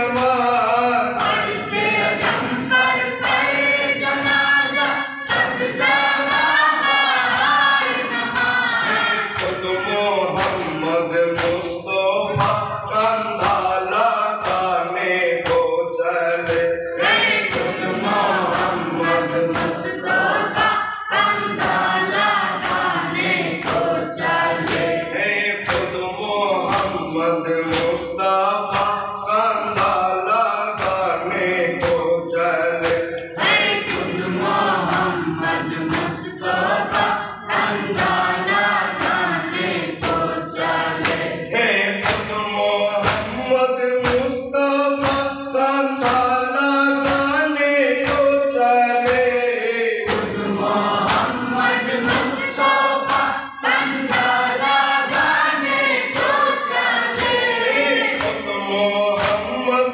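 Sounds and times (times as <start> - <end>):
men chanting in chorus: 0.0 - 59.9.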